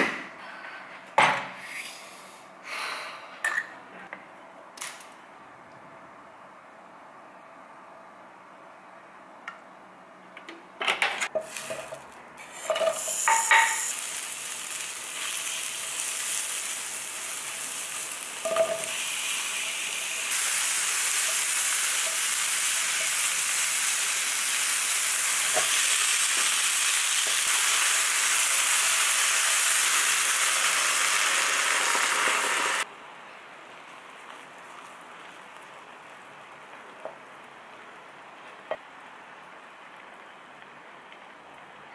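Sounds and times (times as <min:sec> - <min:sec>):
mushrooms and onions sizzling in pan: 0:11.4 - 0:32.9.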